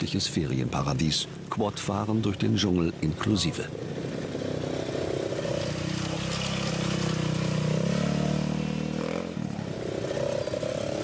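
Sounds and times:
quad bike engines revving: 2.8 - 11.0.

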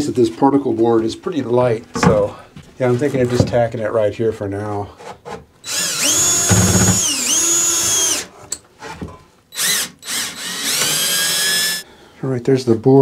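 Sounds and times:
cordless drill motor whine: 5.7 - 8.3, 9.5 - 11.8.

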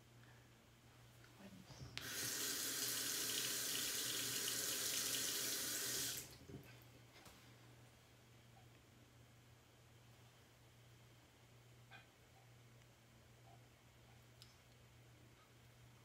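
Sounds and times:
faucet running: 2.0 - 6.4.

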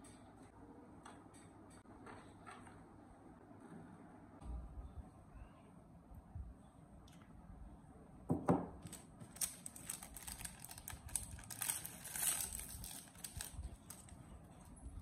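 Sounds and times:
face mask crinkling: 8.8 - 14.2.

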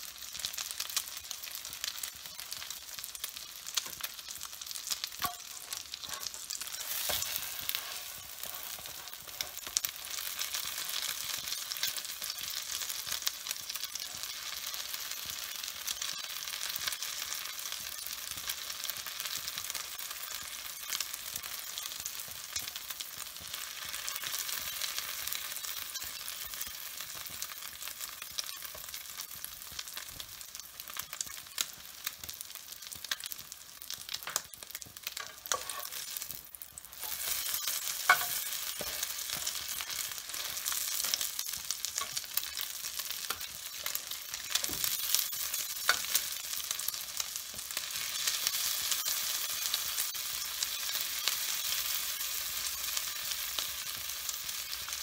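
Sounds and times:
omelette sizzling in hot oil: 0.0 - 55.0
metal spatula scraping a pan: 5.0 - 12.6, 34.2 - 46.9.

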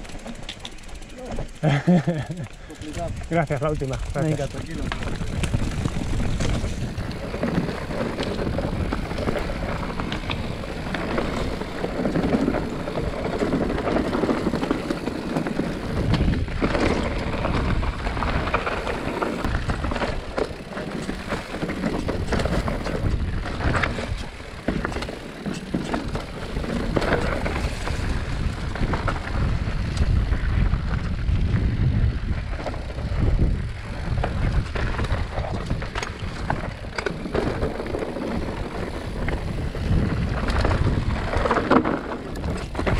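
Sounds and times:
bike rattling over rocks: 0.0 - 42.9
wind buffeting microphone: 1.8 - 42.9.

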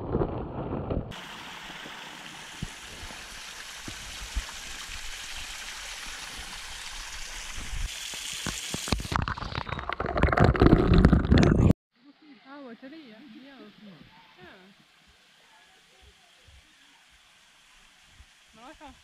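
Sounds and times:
waterfall splashing onto rocks: 1.1 - 9.6, 15.0 - 19.0.

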